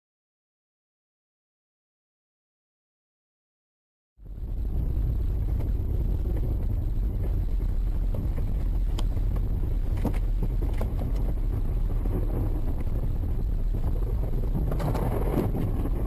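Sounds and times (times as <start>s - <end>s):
vehicle engine and road noise: 4.2s - 16.0s
faint clicks: 8.1s - 11.4s.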